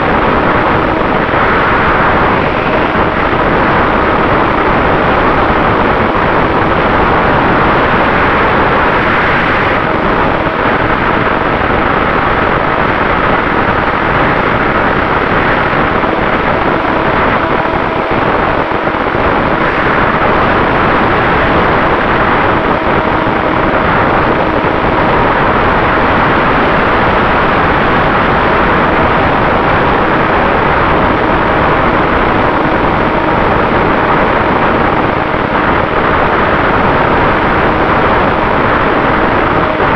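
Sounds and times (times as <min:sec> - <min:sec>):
electric motor whine: 0:00.0 - 0:27.5
propeller noise: 0:00.0 - 0:39.9
wind rushing: 0:00.0 - 0:39.9.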